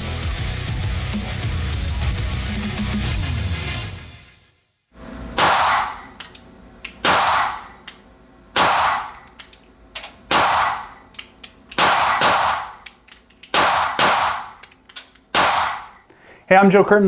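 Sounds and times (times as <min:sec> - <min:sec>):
pistol shots echoing indoors: 0:05.4 - 0:06.2, 0:07.0 - 0:07.9, 0:08.5 - 0:09.3, 0:10.0 - 0:11.0, 0:11.7 - 0:12.9, 0:13.5 - 0:14.7, 0:15.3 - 0:16.0.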